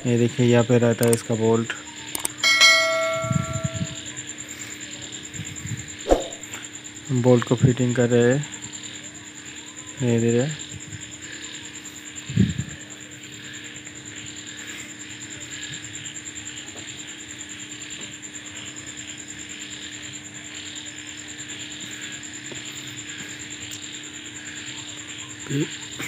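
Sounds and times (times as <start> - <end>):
high-pitched background drone: 2.2 - 4.2.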